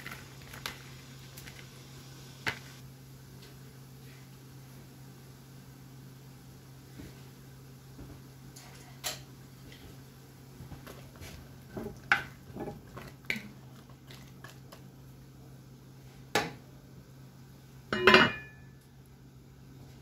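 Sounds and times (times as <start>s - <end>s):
pot lid clanking: 18.0s - 18.6s.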